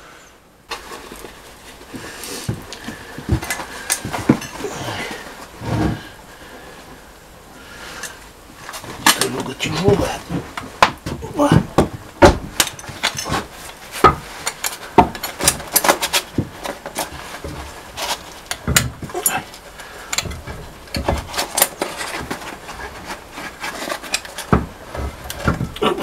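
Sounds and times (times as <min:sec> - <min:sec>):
metallic knocks and clunks: 0:08.9 - 0:16.7, 0:18.5 - 0:19.4.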